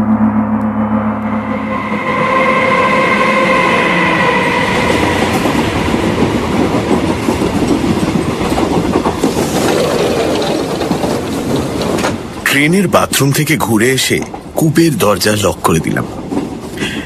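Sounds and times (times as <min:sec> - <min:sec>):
ringing tone: 0:00.0 - 0:05.4
train carriage rattling: 0:02.6 - 0:17.0
wheels clattering over rail joints: 0:05.4 - 0:13.2, 0:15.3 - 0:17.0.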